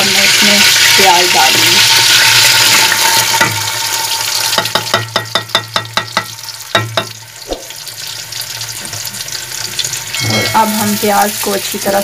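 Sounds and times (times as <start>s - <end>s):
onions sizzling in hot oil: 0.0s - 12.0s
metal bowl tapping on pot: 4.5s - 7.7s.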